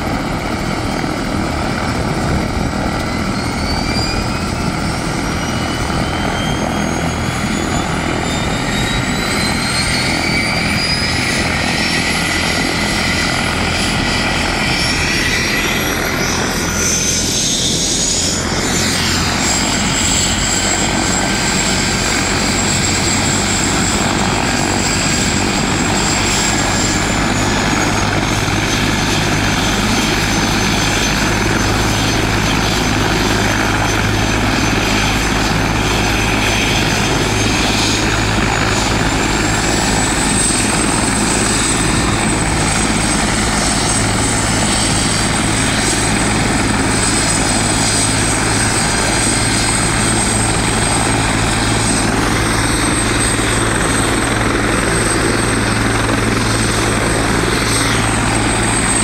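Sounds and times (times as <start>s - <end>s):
helicopter rotor and engine drone: 0.0s - 59.0s
turbine whine: 0.0s - 59.0s.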